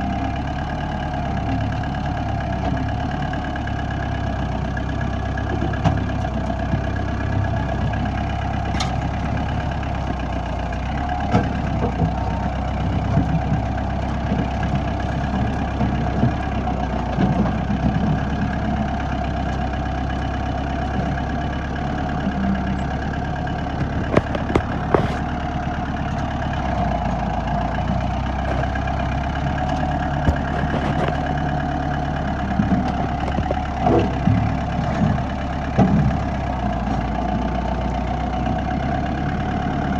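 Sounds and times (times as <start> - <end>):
tractor engine running: 0.0 - 39.9
sharp knocks and cracks: 23.8 - 25.3, 29.6 - 31.5.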